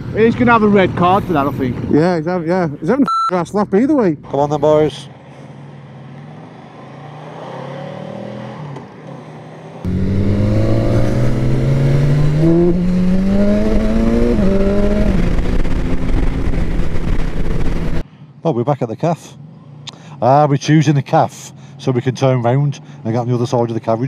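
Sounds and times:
motorcycle engine accelerating: 0:09.8 - 0:18.0.

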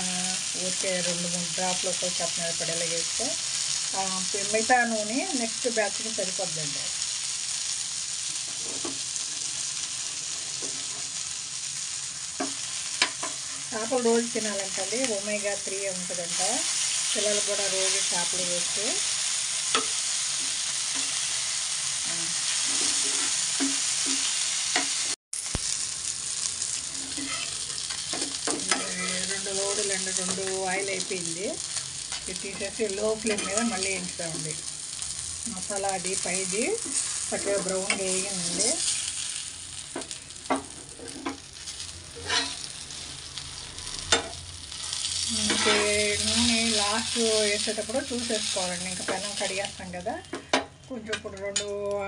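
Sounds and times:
fish sizzling in oil: 0:00.0 - 0:52.0
metal spatula scraping a pan: 0:22.4 - 0:25.0, 0:26.8 - 0:29.5, 0:32.1 - 0:34.0, 0:42.2 - 0:42.7, 0:44.1 - 0:46.6.

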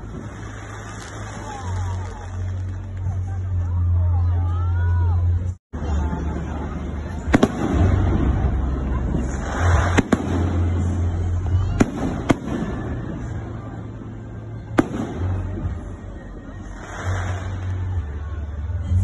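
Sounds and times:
fireworks bangs: 0:00.0 - 0:03.3, 0:07.1 - 0:13.8, 0:14.6 - 0:15.9
continuous low rumble: 0:00.0 - 0:19.0.

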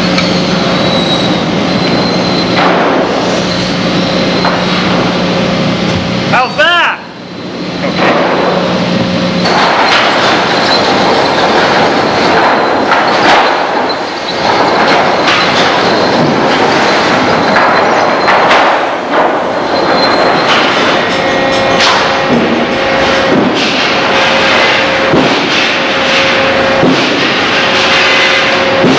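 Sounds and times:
sawmill machinery running: 0:00.0 - 0:28.9
boards knocking and clattering: 0:02.4 - 0:03.3, 0:07.9 - 0:08.7, 0:09.4 - 0:28.9.

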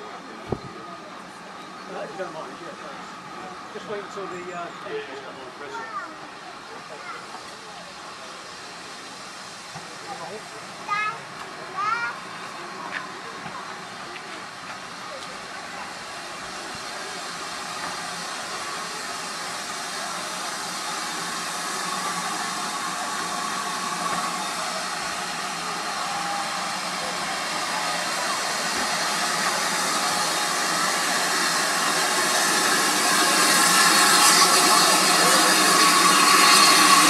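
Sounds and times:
steam locomotive rushing: 0:00.0 - 0:37.0.

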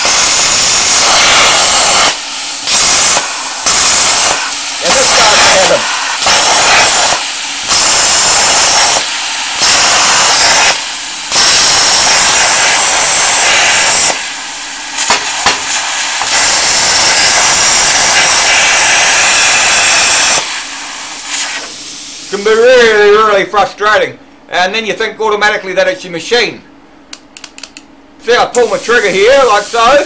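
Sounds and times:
plasma cutter hissing: 0:00.0 - 0:22.6, 0:28.6 - 0:30.0
soft hiss of air: 0:00.0 - 0:22.6, 0:28.5 - 0:30.0.

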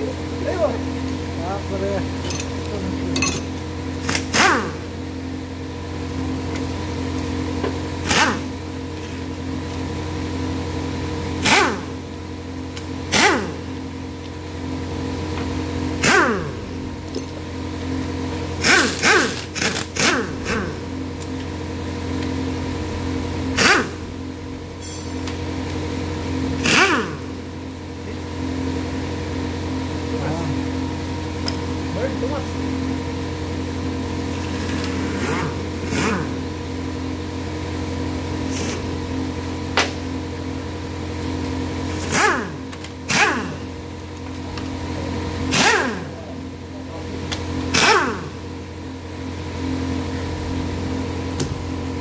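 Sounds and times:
low hum: 0:00.0 - 0:47.4
pneumatic impact wrench: 0:02.2 - 0:05.0, 0:07.6 - 0:09.4, 0:11.3 - 0:12.0, 0:12.7 - 0:13.8, 0:15.3 - 0:17.4, 0:18.5 - 0:20.9, 0:23.5 - 0:25.4, 0:26.5 - 0:27.5, 0:34.3 - 0:36.6, 0:38.4 - 0:39.0, 0:41.4 - 0:43.8, 0:45.4 - 0:46.4, 0:47.3 - 0:48.5.

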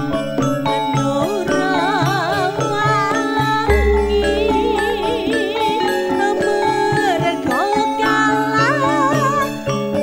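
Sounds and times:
mallet percussion ensemble music: 0:03.7 - 0:06.6.

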